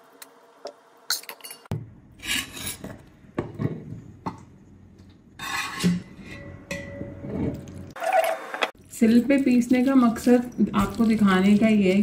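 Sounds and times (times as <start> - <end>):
spoon scraping metal pot: 5.4 - 7.7.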